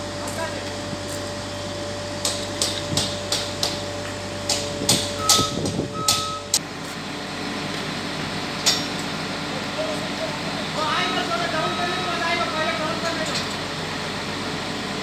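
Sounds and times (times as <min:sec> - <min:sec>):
diesel engine hum: 0:00.0 - 0:15.0
short high beeps: 0:05.2 - 0:06.6.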